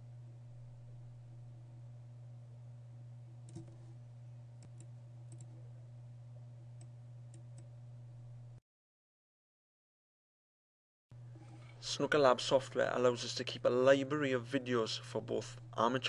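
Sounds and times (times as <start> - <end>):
low electrical hum: 0.0 - 8.6, 11.1 - 16.0
computer mouse clicking: 3.4 - 3.8, 4.6 - 5.5.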